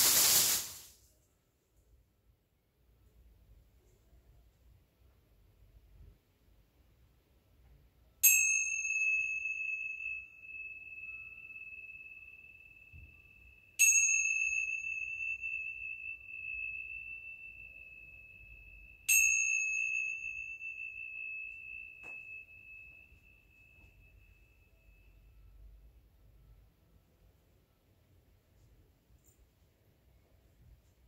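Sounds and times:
high-pitched chime ringing: 8.2 - 25.8.

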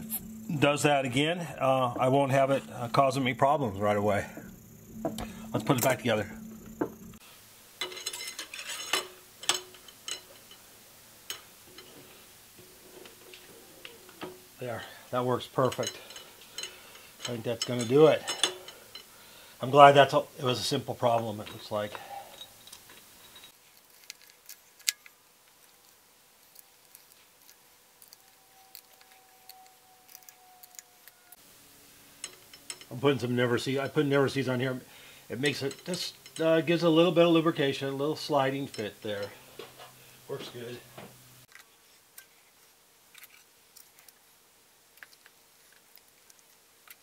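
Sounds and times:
steel parts clinking: 7.8 - 10.7, 11.3 - 19.2, 21.2 - 25.1, 32.2 - 34.7, 35.3 - 40.0.

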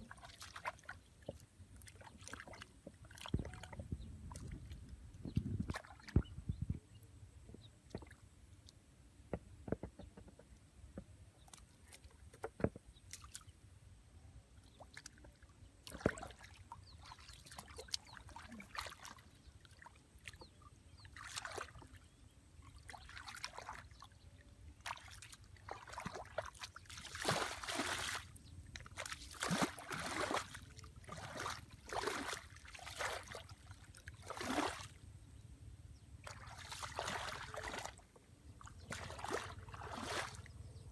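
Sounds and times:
hands sloshing through muddy water: 0.0 - 6.4, 14.7 - 35.0, 36.2 - 40.8
water splashes: 0.0 - 6.4, 14.6 - 24.2, 24.8 - 35.0, 36.2 - 40.6.

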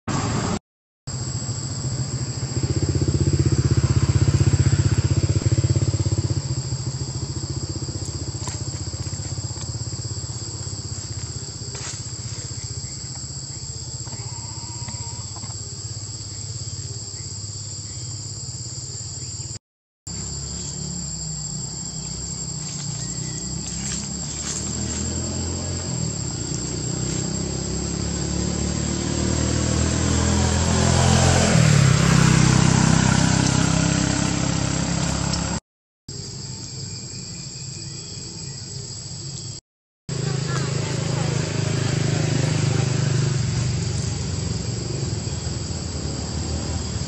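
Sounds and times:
high-pitched insect buzz: 1.1 - 30.2
motor engine running: 1.6 - 17.0, 20.1 - 35.6, 40.1 - 47.0.

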